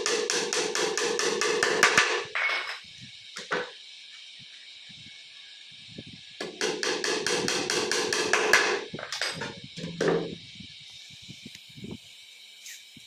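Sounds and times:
hammer tapping nails: 0.0s - 2.2s, 6.4s - 9.3s.

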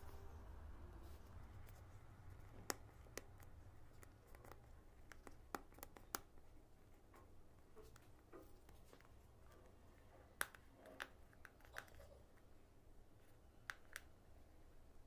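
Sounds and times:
fingers clicking on cardboard box: 2.6s - 7.1s.

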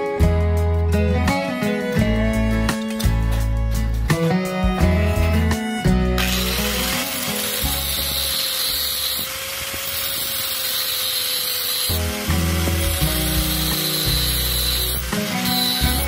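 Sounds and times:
angle grinder cutting steel: 4.9s - 16.0s.

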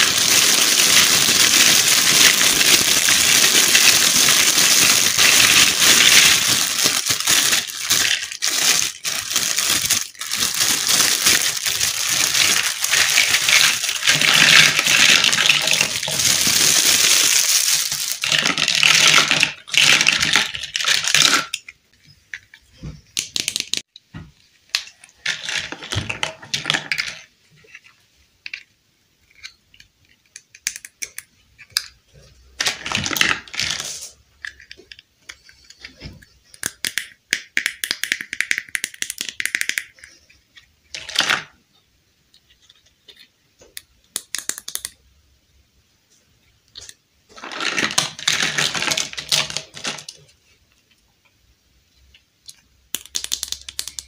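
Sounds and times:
plastic bag crinkling: 0.0s - 21.5s, 47.4s - 50.3s
plastic toy pieces clicking: 28.4s - 32.0s, 36.5s - 40.2s, 43.1s - 45.0s, 52.4s - 54.0s.

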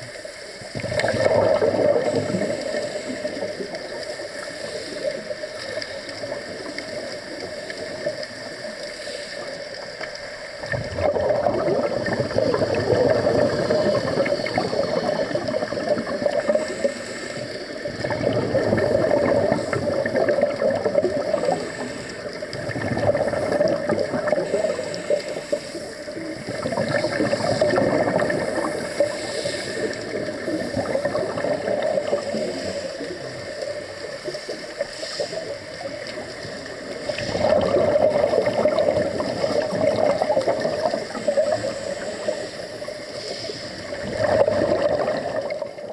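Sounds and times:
steady underwater hiss: 0.0s - 45.9s
underwater bubbling of exhaled air: 0.0s - 45.9s.

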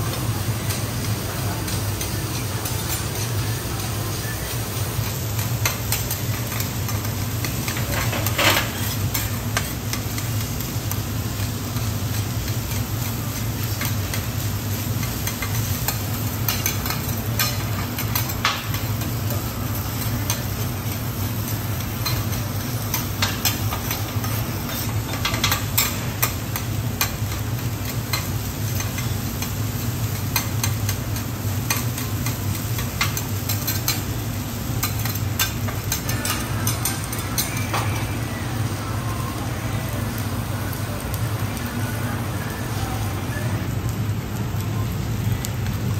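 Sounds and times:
rice sizzling on a griddle: 0.0s - 45.9s.

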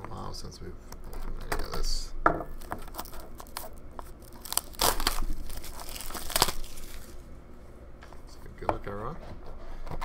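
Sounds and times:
plastic shrink-wrap crinkling and tearing: 2.6s - 7.2s.

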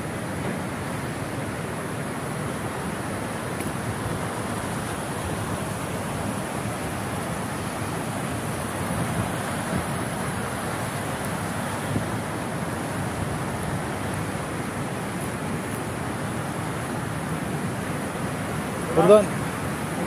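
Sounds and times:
river rushing: 0.0s - 20.0s.

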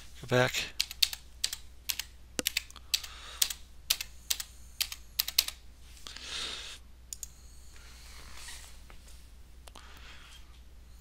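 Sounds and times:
soft breathy hiss: 5.8s - 11.0s.

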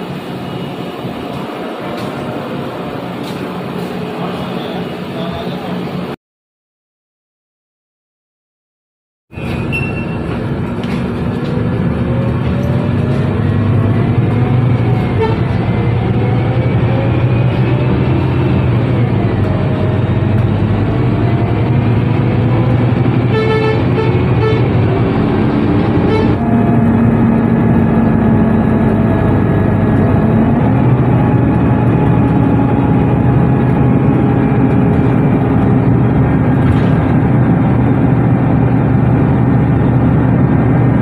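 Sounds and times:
bus engine whine: 0.0s - 6.2s, 9.3s - 41.0s
horn toot: 15.1s - 15.6s, 23.3s - 24.8s, 26.0s - 26.4s.

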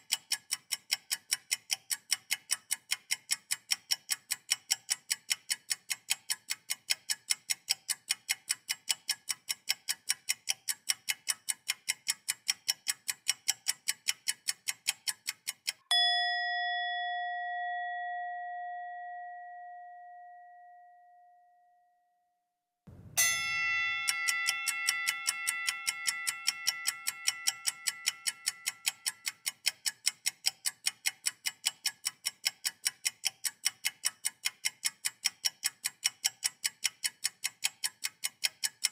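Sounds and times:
rapid even ticking: 0.0s - 15.8s, 24.1s - 38.9s
bell-like tone ringing: 15.9s - 22.0s, 23.2s - 27.2s.

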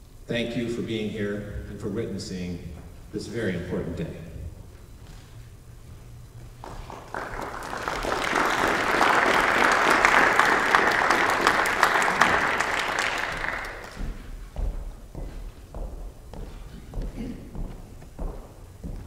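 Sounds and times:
audience applauding: 6.5s - 14.3s.

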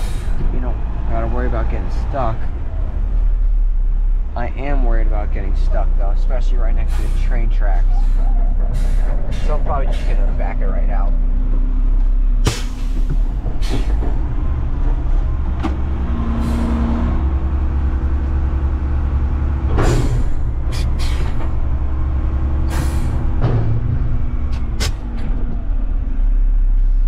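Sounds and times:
diesel truck engine running: 0.0s - 27.0s
air brake hissing: 7.9s - 10.1s, 12.4s - 14.0s, 16.3s - 17.0s, 20.7s - 21.4s, 22.7s - 23.2s.

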